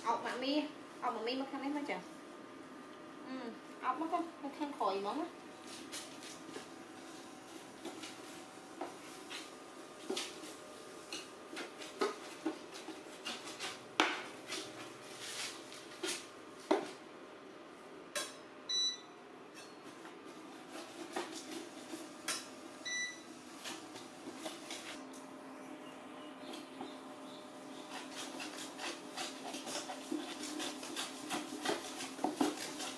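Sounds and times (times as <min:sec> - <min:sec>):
steady hum: 0:00.0 - 0:32.1.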